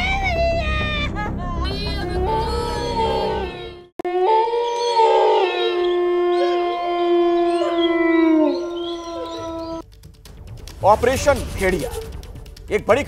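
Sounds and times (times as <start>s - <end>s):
wolves howling: 4.0s - 9.8s.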